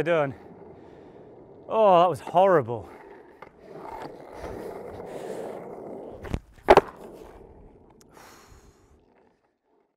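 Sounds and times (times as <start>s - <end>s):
skateboard wheels rolling on concrete: 0.0s - 9.9s
skateboard landing clack: 5.8s - 8.0s
skateboard tail pop: 6.2s - 7.4s.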